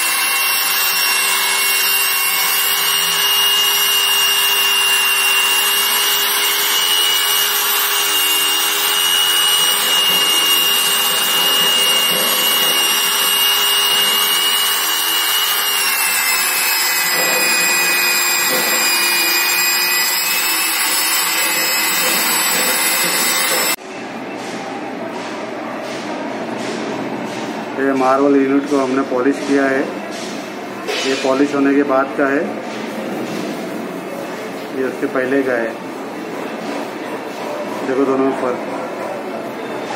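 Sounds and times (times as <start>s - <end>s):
electric polisher motor whine: 0.0s - 23.8s
polishing pad grinding on marble: 0.0s - 23.8s.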